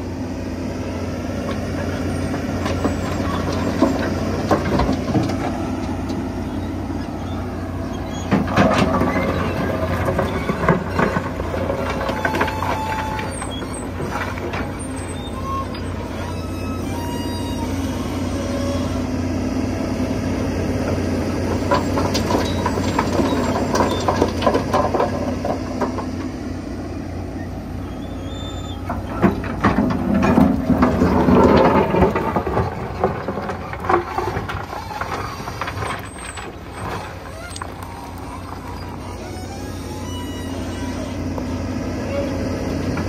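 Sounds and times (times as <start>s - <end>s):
excavator diesel engine running: 0.0s - 43.0s
rocks clattering and scraping: 1.5s - 6.3s, 8.0s - 18.9s, 20.9s - 26.3s, 28.9s - 41.5s.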